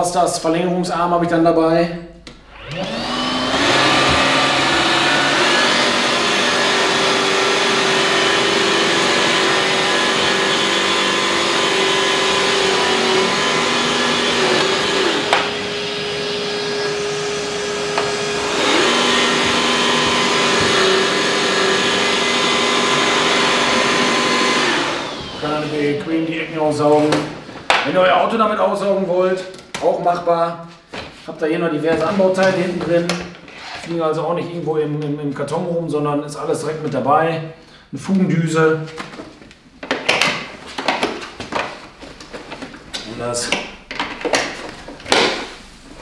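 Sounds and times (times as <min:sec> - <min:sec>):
vacuum cleaner motor whine: 0:02.5 - 0:26.1.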